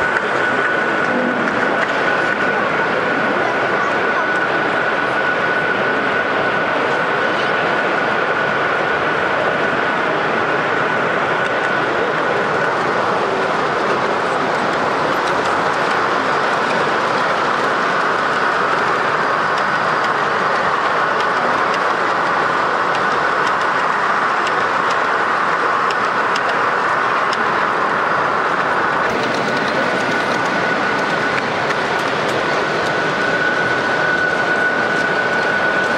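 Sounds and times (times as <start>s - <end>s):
exhibition hall din: 0.0s - 35.9s
faint steady whine: 0.0s - 35.9s
model train wheels clattering: 11.4s - 35.9s.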